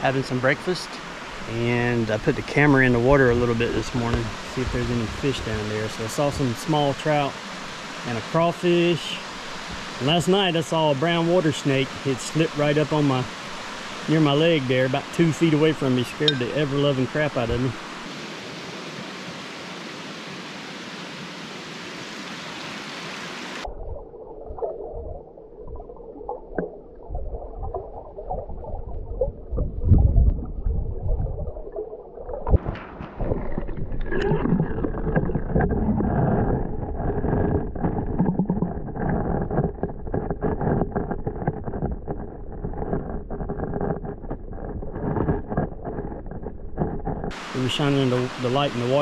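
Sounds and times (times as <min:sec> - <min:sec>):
underwater gurgling and rumbling: 0:00.0 - 0:18.1, 0:23.6 - 0:49.0
creek hissing: 0:00.0 - 0:23.7, 0:47.3 - 0:49.0.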